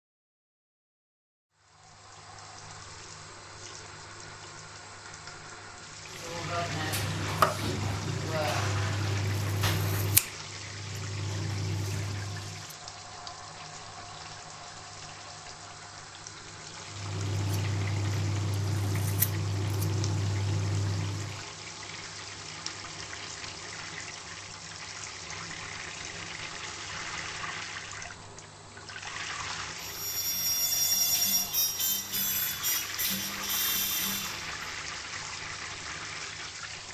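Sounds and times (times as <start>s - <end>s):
running water rushing: 3.4s - 22.8s, 31.2s - 36.9s
low hum: 17.0s - 21.4s.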